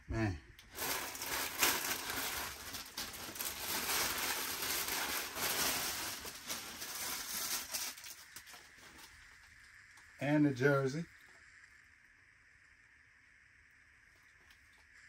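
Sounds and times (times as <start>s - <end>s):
plastic bag crinkling: 0.7s - 9.2s.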